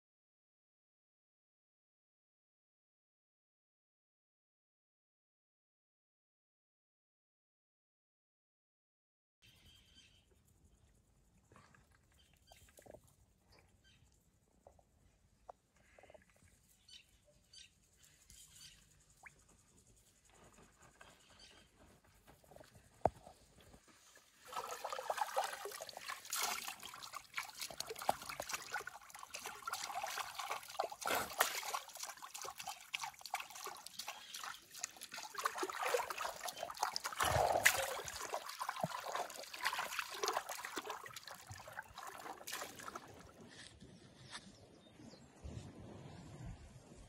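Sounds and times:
water splashing in a trough: 24.2 - 43.4.

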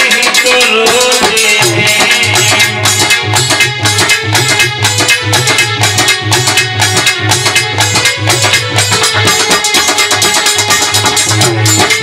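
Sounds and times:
hand drums rhythm: 0.0 - 12.0.

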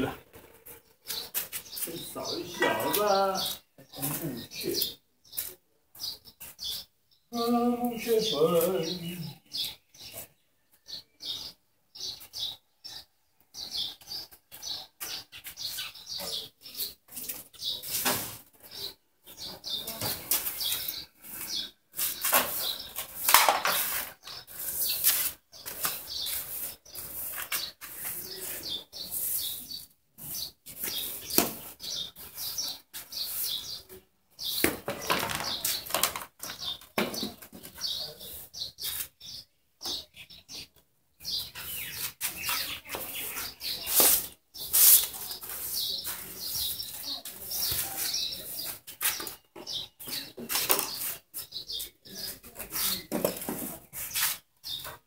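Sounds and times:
broom sweeping on brick paving: 0.5 - 6.9, 16.7 - 34.6, 37.7 - 39.4, 41.6 - 54.9.

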